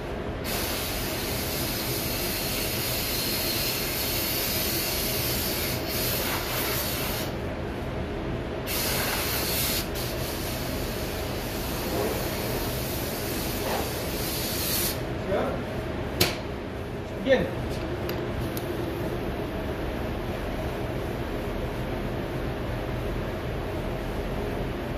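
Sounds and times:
ventilation rumble: 0.0 - 24.9
compressed air blow gun hissing: 0.4 - 7.3, 8.7 - 15.0.

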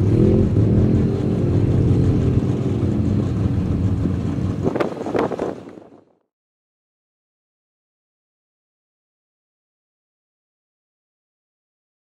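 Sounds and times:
truck engine at high revs: 0.0 - 6.1.

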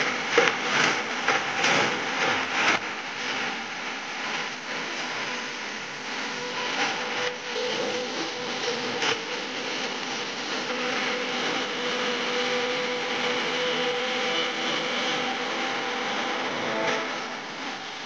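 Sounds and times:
distorted dance music over loudspeakers: 5.4 - 18.0.

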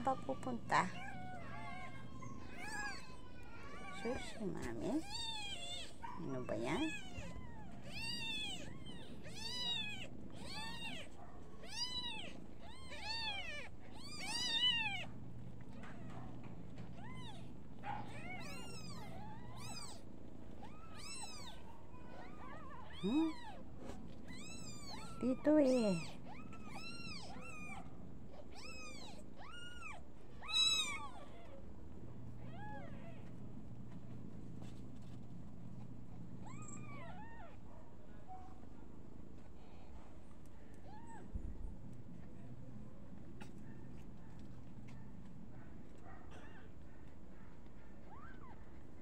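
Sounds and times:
kittens mewing: 0.0 - 31.7, 36.2 - 37.6, 43.3 - 43.9.

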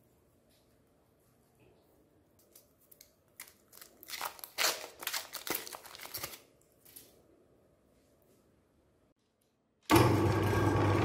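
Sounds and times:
foil wrapper crinkling: 3.3 - 7.1.

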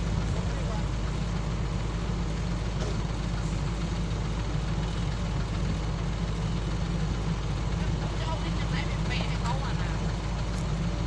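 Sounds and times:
excavator diesel engine running: 0.0 - 11.0.

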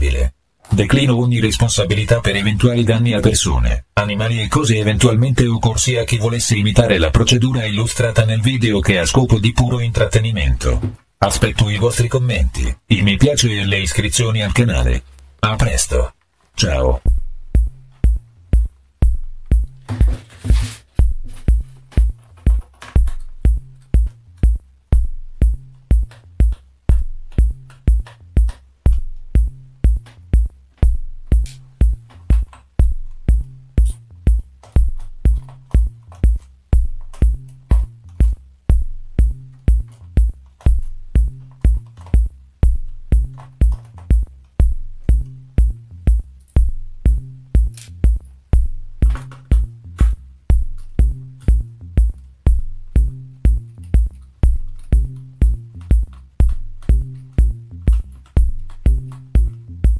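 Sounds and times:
electronic music with drum machine beat: 16.6 - 59.9.

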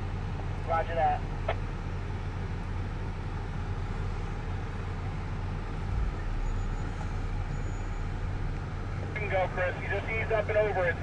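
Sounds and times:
car engine idling: 0.0 - 11.0
low bump: 5.7 - 7.5.

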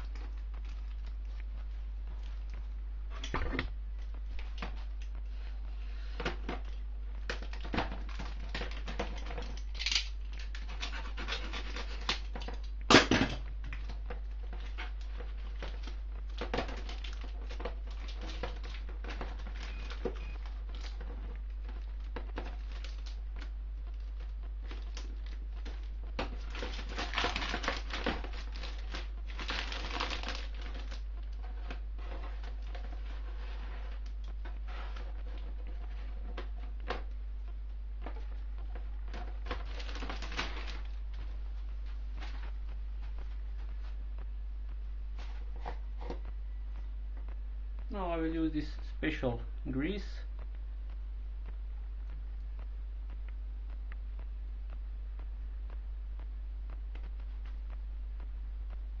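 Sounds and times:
plastic packaging crinkling: 4.0 - 37.2, 38.0 - 43.9.

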